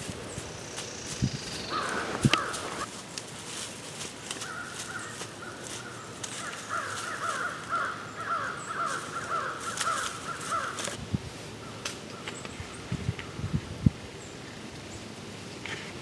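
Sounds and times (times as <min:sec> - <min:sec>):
birds making harsh repeated calls: 0:00.0 - 0:02.9, 0:04.3 - 0:13.4.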